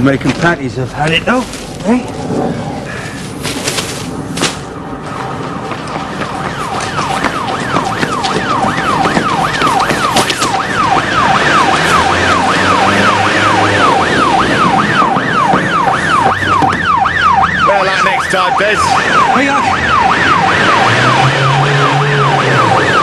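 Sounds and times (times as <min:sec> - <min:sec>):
police siren yelping: 0:04.6 - 0:23.0.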